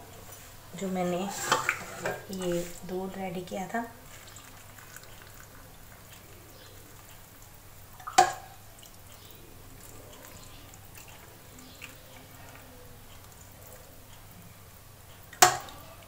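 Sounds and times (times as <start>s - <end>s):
faint dripping: 0.1s - 16.0s
milk pouring: 1.3s - 14.0s.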